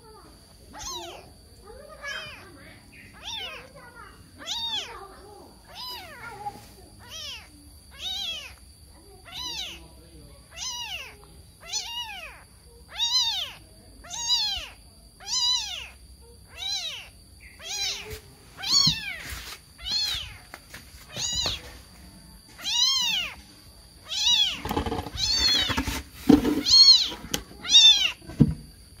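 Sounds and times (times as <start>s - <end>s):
kitten meowing: 0.7s - 1.3s, 3.1s - 3.7s, 4.4s - 5.0s, 5.7s - 6.2s, 7.0s - 8.6s, 9.2s - 9.8s, 10.5s - 19.2s, 19.8s - 20.4s, 21.1s - 21.6s, 22.6s - 23.4s, 24.0s - 25.8s, 26.6s - 28.2s.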